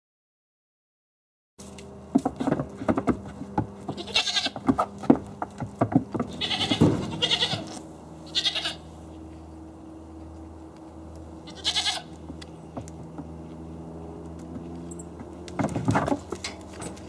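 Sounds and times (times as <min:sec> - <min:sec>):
goats knocking on wooden stand: 0:02.1 - 0:07.8, 0:12.2 - 0:13.4, 0:14.4 - 0:17.0
goats bleating: 0:03.8 - 0:04.9, 0:06.2 - 0:09.0, 0:11.4 - 0:12.5.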